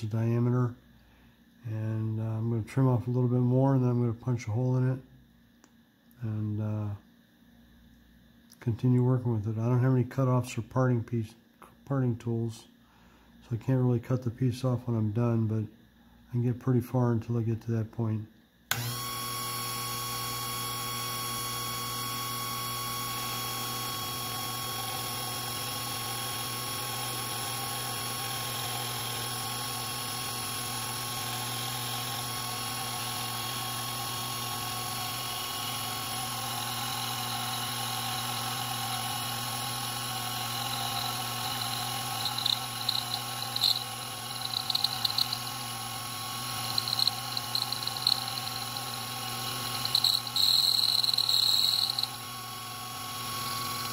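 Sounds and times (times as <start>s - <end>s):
lathe motor hum and whine: 18.7s - 53.9s
cutting tool scraping metal: 40.9s - 45.6s, 46.5s - 52.2s.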